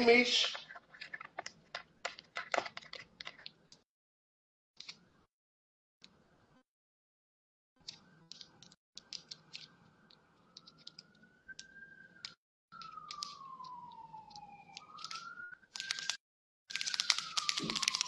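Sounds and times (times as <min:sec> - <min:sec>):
fingernails clicking and crinkling: 0:00.5 - 0:03.8, 0:07.8 - 0:18.0.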